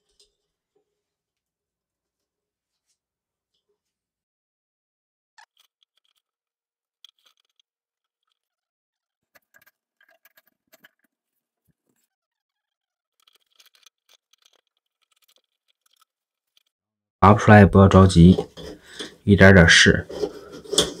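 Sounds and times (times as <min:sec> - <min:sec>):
plastic tool scratching in drain: 0:05.4 - 0:16.7, 0:18.2 - 0:21.0.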